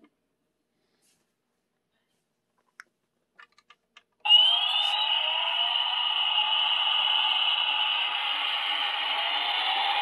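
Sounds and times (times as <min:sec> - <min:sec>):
toy helicopter rotor whir: 0:04.3 - 0:10.0.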